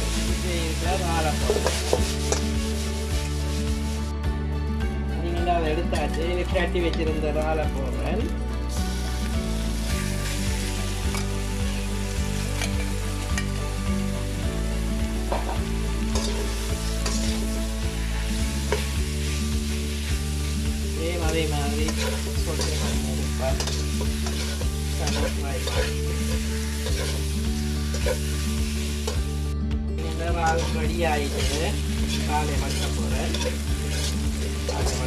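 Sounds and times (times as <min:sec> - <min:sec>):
spatula scraping wok: 0:00.0 - 0:04.0, 0:15.3 - 0:29.3, 0:30.2 - 0:35.0
prawns sizzling in oil: 0:00.0 - 0:04.1, 0:06.0 - 0:35.0
background music: 0:00.0 - 0:35.0.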